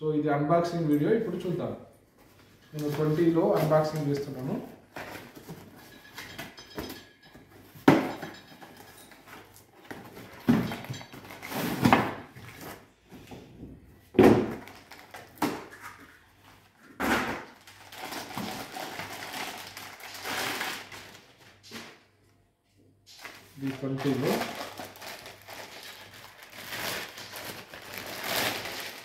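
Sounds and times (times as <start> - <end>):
plastic bag rustling: 9.2 - 13.0, 17.4 - 22.0, 23.1 - 29.0
cardboard knocks and thuds: 14.1 - 14.7.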